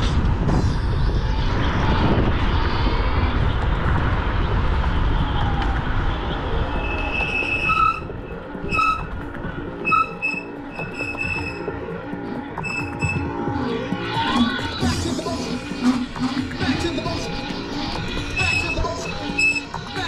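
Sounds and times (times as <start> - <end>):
wind and road rumble: 0.0 - 9.9.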